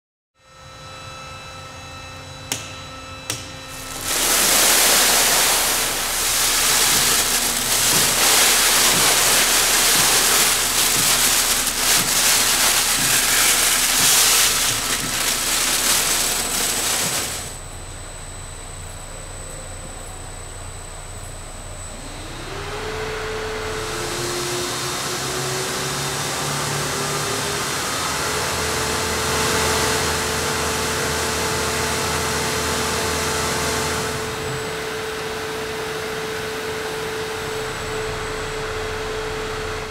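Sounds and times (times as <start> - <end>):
auger motor whine: 0.5 - 39.9
granular material pouring into hopper: 3.7 - 17.7, 23.7 - 39.9.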